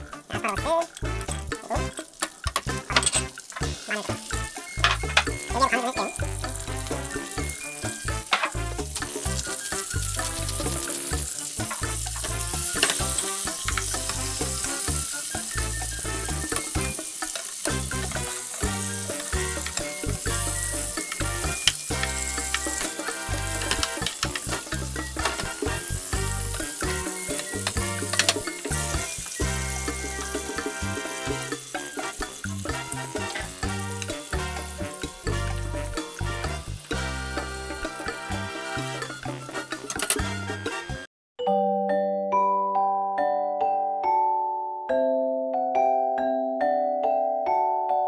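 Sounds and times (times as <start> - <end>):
background music with bass line: 0.0 - 41.1
vegetables sizzling in a frying pan: 1.9 - 38.5.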